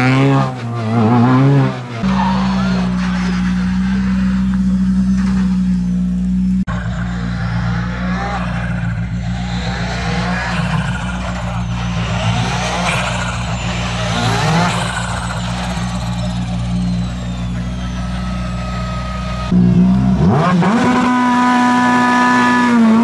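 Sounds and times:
car engine revving at low speed: 0.0s - 23.0s.

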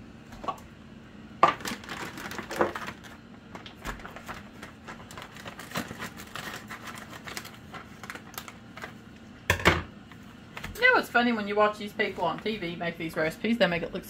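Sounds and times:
packaging crinkling: 1.4s - 9.2s.

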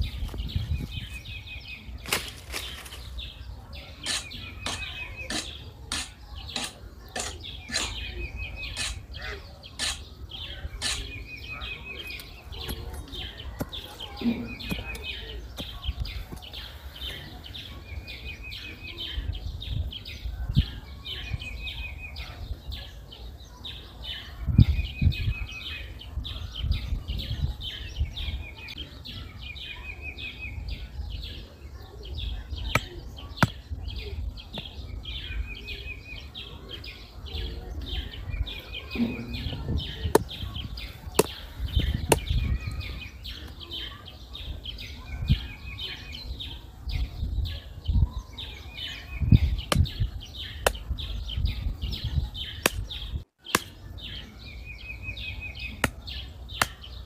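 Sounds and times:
birds singing: 0.0s - 57.0s
bird trill: 3.8s - 19.3s.

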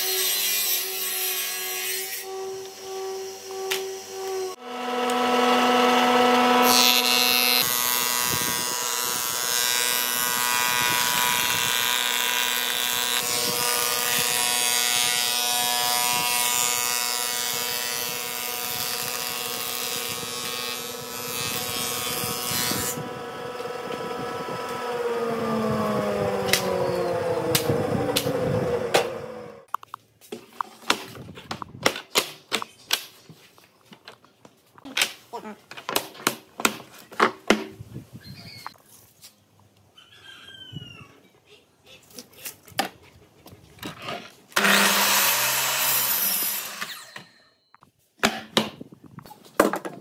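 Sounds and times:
wood planer cutting boards: 0.0s - 29.7s, 43.8s - 47.3s
planer motor hum: 2.6s - 9.5s, 20.9s - 29.6s.

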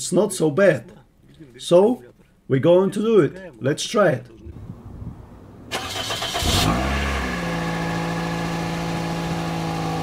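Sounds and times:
car starter cranking: 5.7s - 7.2s.

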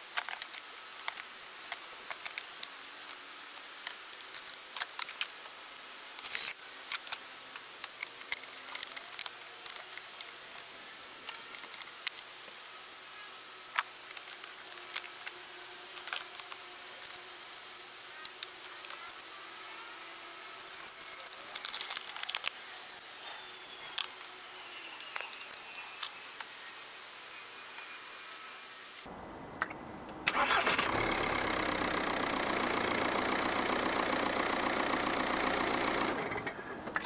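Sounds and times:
faint steady hiss: 0.0s - 37.0s
plastic parts clicking and knocking: 0.1s - 3.2s, 13.7s - 15.4s, 20.7s - 23.0s.

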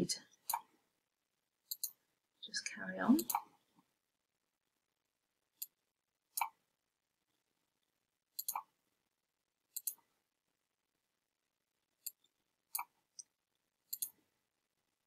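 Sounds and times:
computer mouse clicks: 0.4s - 0.7s, 1.7s - 2.0s, 3.2s - 3.5s, 5.6s - 6.6s, 8.4s - 8.7s, 9.7s - 10.1s, 12.0s - 13.3s, 13.9s - 14.2s.

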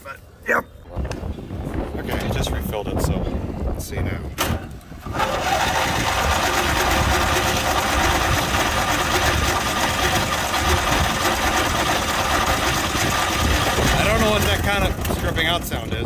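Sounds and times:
starter cranking engine: 5.0s - 15.7s
rapid mechanical chatter: 5.0s - 16.0s.

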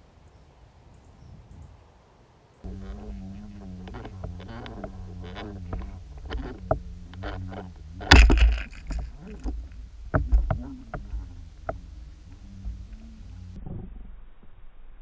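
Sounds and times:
low wavering underwater drone: 2.6s - 15.0s
clicks and knocks of lures: 3.9s - 11.8s.

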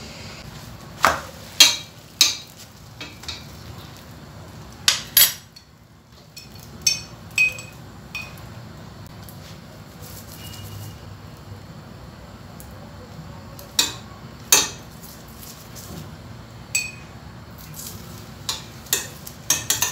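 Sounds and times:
metal utensils clinking on pan: 6.3s - 8.4s, 18.5s - 19.9s.

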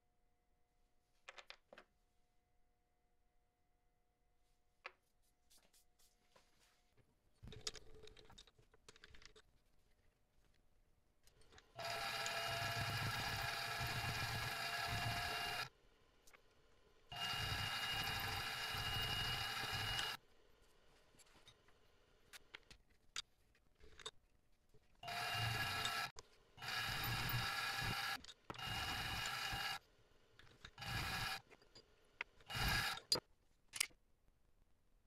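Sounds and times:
milling machine whining: 11.8s - 15.7s, 17.1s - 20.2s, 25.0s - 29.8s, 30.8s - 31.4s, 32.5s - 33.1s.

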